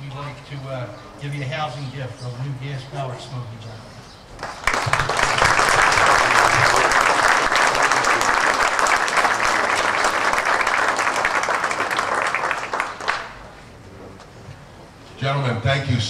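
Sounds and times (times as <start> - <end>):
crowd applauding: 4.4 - 13.4.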